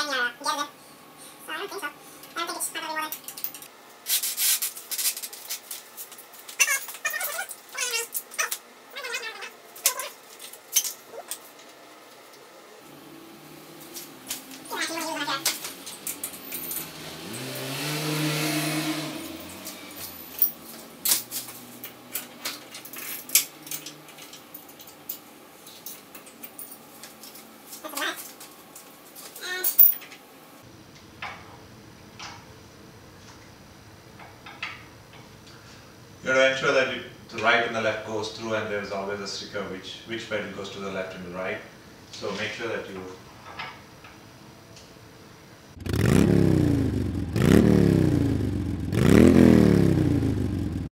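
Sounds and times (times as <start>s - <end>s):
engine revving: 12.9s - 14.7s, 15.4s - 20.2s, 45.8s - 50.9s
metallic tool clicks and clinks: 29.6s - 30.1s.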